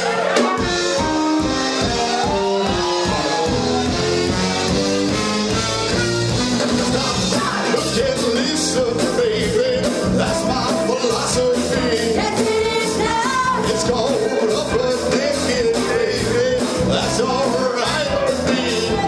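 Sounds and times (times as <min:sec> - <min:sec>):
drum kit beat: 0:00.0 - 0:19.0
rock and roll band playing: 0:00.0 - 0:19.0
lead singing: 0:06.8 - 0:19.0.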